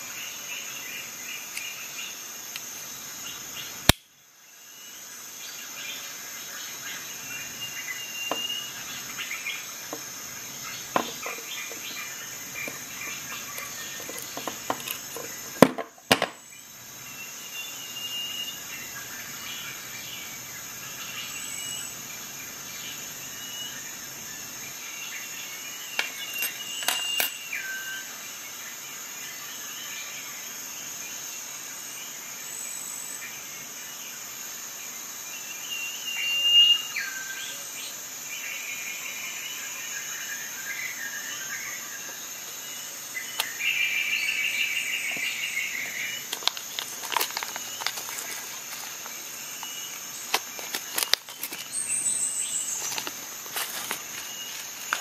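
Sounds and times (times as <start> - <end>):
crickets trilling: 0.0 - 55.0.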